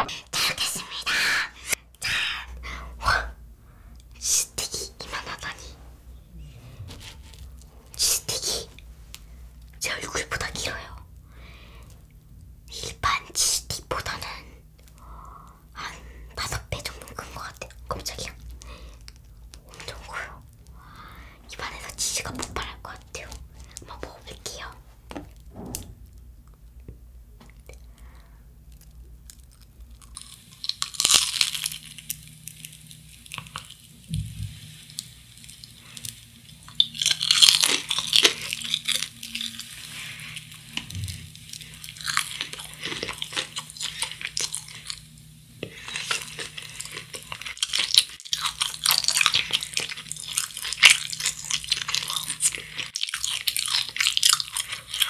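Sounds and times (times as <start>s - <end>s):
fried crust crunching when bitten: 28.7s - 33.9s, 34.9s - 55.0s.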